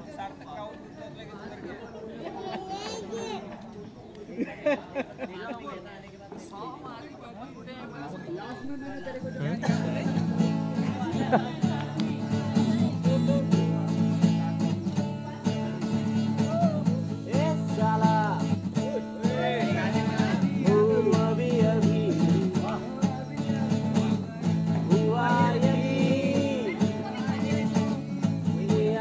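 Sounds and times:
voices singing along: 6.2 - 29.0
acoustic guitar strummed: 9.2 - 29.0.

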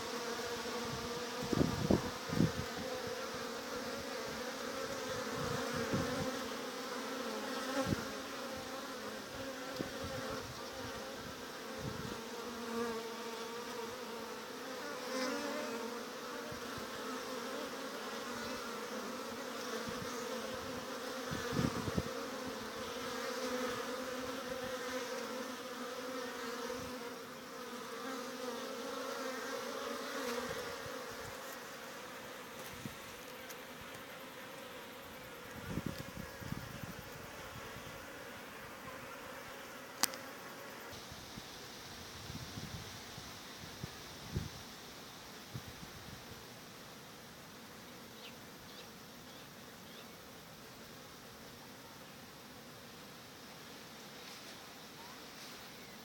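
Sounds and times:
bees buzzing: 0.0 - 42.0.

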